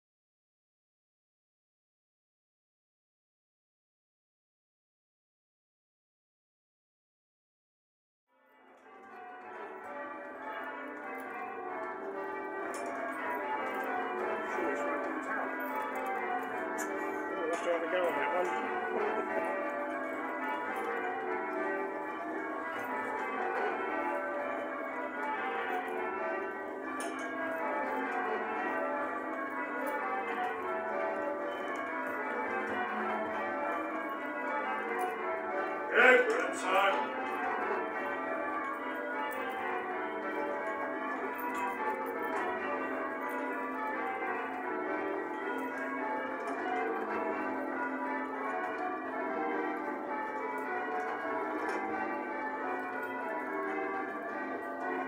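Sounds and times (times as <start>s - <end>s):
church bells ringing: 8.5s - 55.0s
person calling out: 36.0s - 37.1s.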